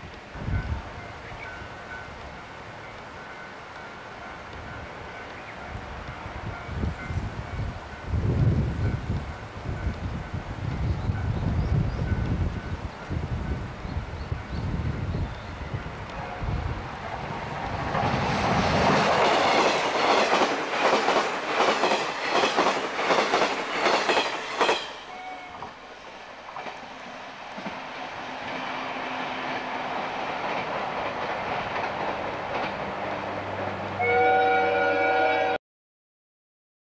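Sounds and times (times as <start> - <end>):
electric train running hum: 0.0 - 35.6
train horn chord: 16.1 - 16.7, 24.8 - 25.6, 34.0 - 35.6
train wheels clattering over rail joints: 17.8 - 25.8.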